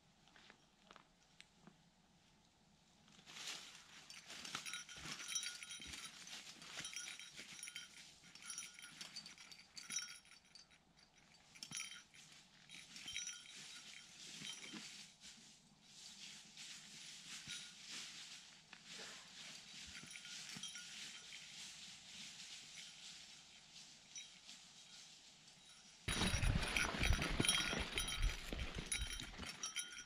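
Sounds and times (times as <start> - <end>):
metallic jingling: 3.9 - 15.0, 19.4 - 30.0
footsteps crunching through dry leaves: 26.1 - 29.6.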